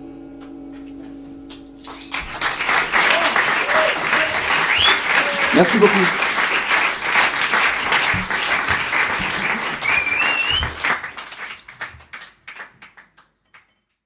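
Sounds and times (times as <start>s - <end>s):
audience applauding: 1.8s - 13.7s
rising whistle: 2.0s - 5.6s, 9.8s - 11.0s.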